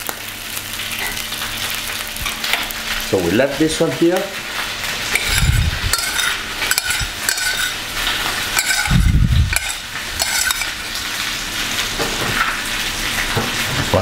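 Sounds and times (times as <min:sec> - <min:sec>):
food sizzling: 0:00.0 - 0:14.0
metal spoon scraping saucepan: 0:05.1 - 0:11.1.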